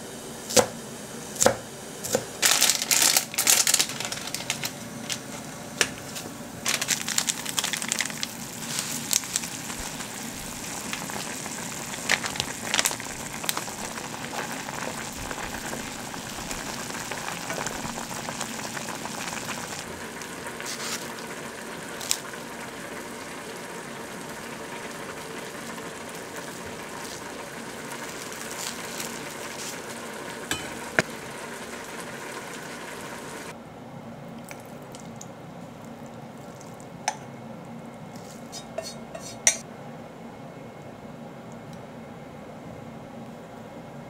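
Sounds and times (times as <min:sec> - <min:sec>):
pot simmering bubbling: 0:06.8 - 0:33.6
chopsticks stirring noodles: 0:38.1 - 0:39.6.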